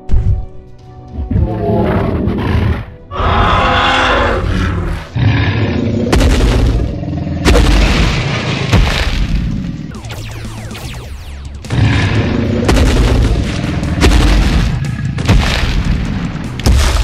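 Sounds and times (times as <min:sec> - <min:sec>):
monster roar: 0:01.6 - 0:06.7
deep booms: 0:06.1 - 0:10.1, 0:11.6 - 0:17.0.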